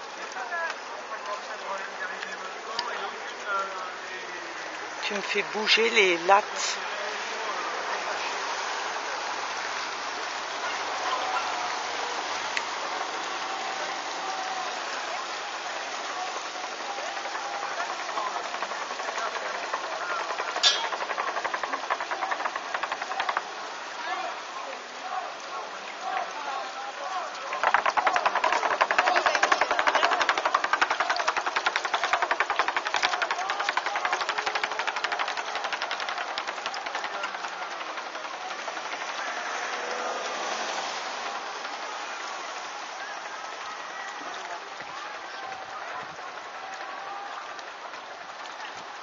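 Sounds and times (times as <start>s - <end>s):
rushing outdoor noise: 0.0s - 49.0s
faint distant voices: 6.5s - 49.0s
outboard motor puttering: 16.6s - 23.9s, 27.4s - 40.0s.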